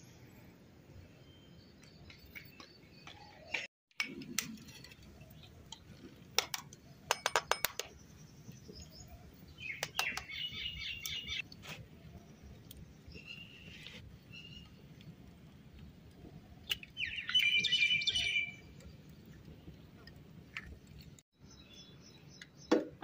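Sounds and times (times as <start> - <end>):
birds chirping: 7.8 - 15.1, 16.6 - 20.0.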